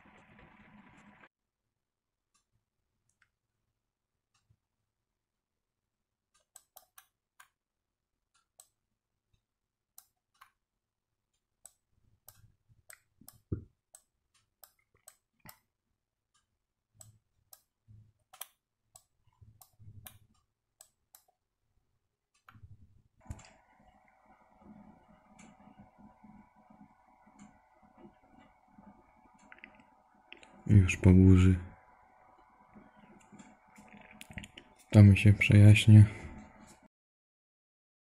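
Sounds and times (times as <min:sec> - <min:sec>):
faint irregular clicks: 0:06.3 - 0:07.6, 0:08.3 - 0:21.4, 0:22.3 - 0:30.6.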